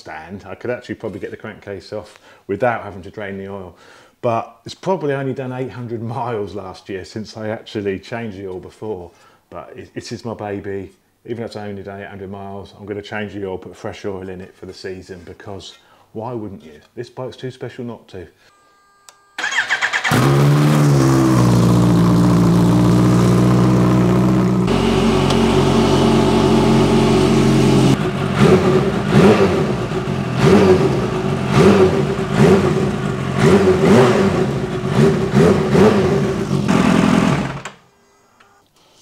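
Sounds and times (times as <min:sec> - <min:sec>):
engine revving: 0:19.4 - 0:37.8
motorcycle engine starting and idling: 0:19.4 - 0:37.8.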